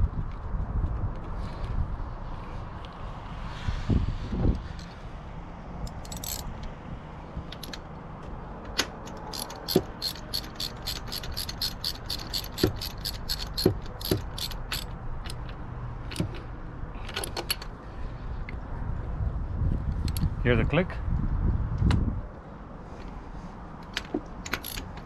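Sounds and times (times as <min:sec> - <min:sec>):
ratchet wrench clicking: 0:05.9 - 0:06.5, 0:09.0 - 0:16.4, 0:23.8 - 0:25.0.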